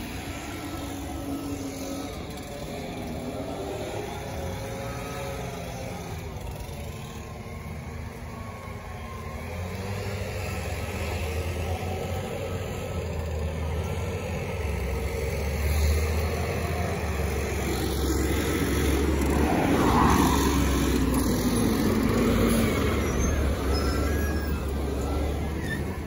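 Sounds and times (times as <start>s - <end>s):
street traffic: 0.0s - 26.0s
garbage truck engine rumbling: 10.8s - 26.0s.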